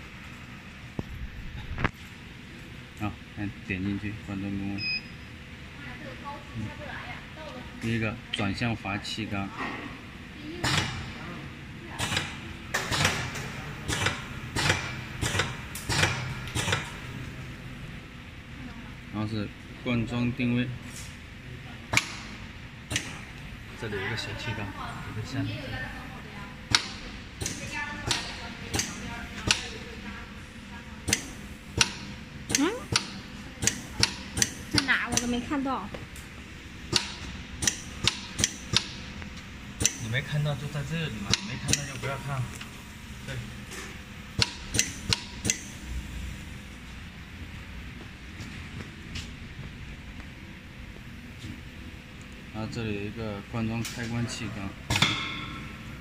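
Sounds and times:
pneumatic cylinders clacking: 12.0 - 17.1, 22.9 - 23.3, 26.7 - 29.8, 31.1 - 35.4, 36.9 - 39.1, 39.8 - 40.2, 41.2 - 42.8, 43.7 - 45.8.

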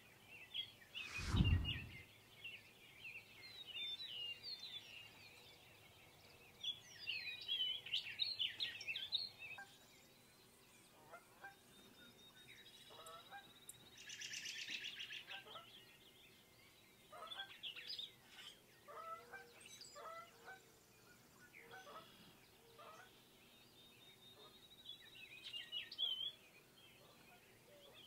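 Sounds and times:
low whoosh: 1.0 - 2.1.

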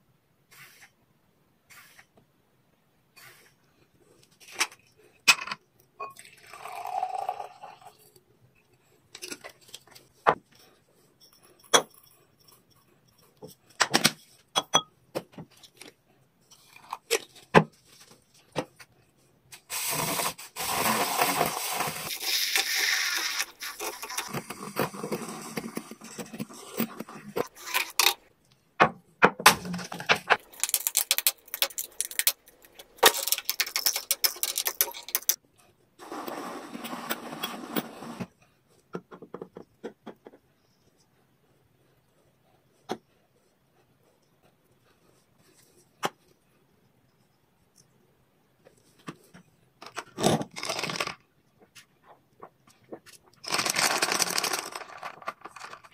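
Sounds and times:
liquid pouring: 6.2 - 8.0.

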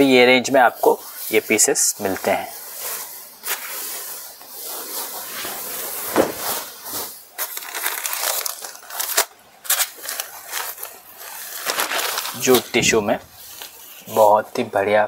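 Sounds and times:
fabric rustling and crinkling: 0.8 - 14.9
fabric swishes: 1.1 - 7.4.

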